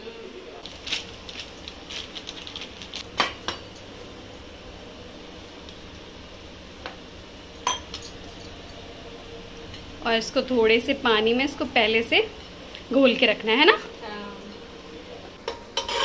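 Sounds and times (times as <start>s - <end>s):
metal spoon scraping in bowl: 15.8s - 16.0s.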